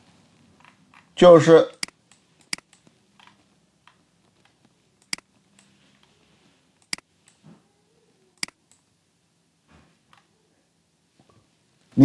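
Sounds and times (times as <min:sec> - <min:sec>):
computer mouse clicks: 0:00.6 - 0:01.1, 0:01.7 - 0:05.8, 0:06.8 - 0:07.4, 0:08.4 - 0:08.9.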